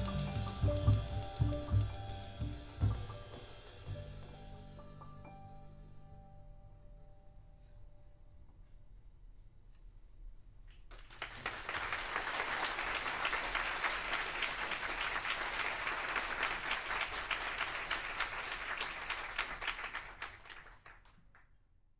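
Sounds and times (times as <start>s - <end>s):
audience applauding: 10.9s - 21.4s.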